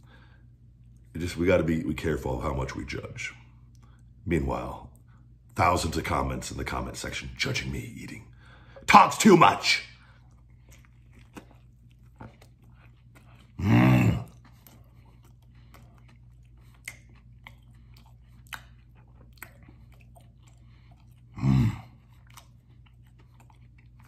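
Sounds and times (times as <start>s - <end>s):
man chewing food: 0.0s - 5.6s, 6.3s - 24.0s
low vocal grunt: 13.6s - 14.4s, 21.4s - 22.0s
wet mouth clicks and smacks: 14.4s - 21.2s.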